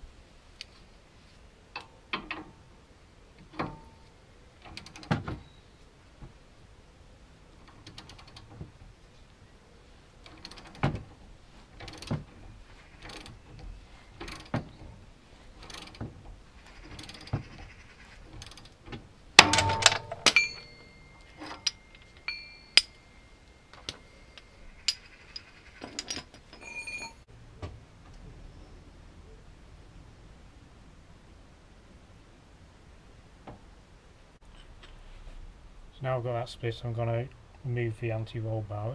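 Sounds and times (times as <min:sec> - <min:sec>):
loud metallic clanks: 0:19.4 - 0:27.2
metal tools knocking: 0:19.4 - 0:27.2.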